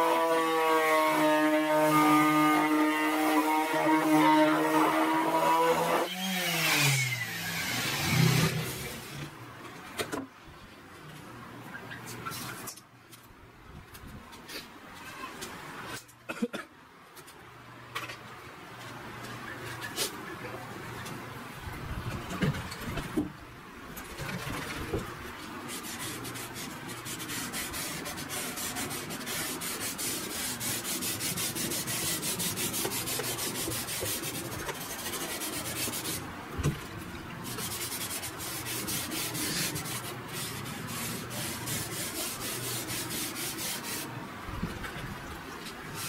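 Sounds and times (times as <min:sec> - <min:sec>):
rag rubbing on wooden board: 0:25.6 - 0:36.2, 0:37.4 - 0:44.1.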